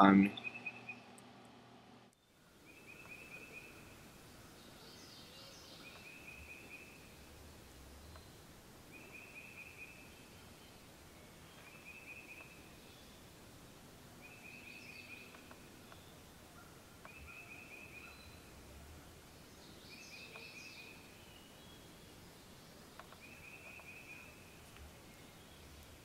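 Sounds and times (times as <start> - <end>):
bird chirps: 0.0 - 1.2, 2.2 - 13.3, 14.2 - 26.0
songbird trilling: 0.3 - 1.0, 7.9 - 10.8, 11.4 - 13.2.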